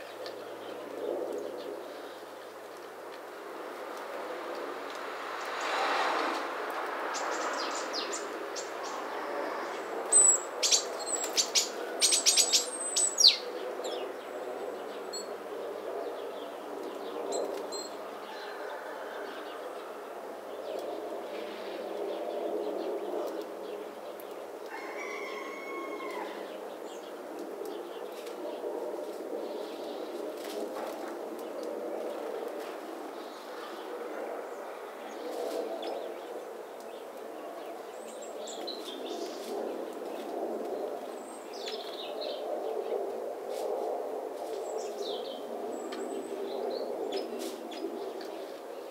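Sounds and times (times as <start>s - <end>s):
birds chirping: 7.1s - 15.4s.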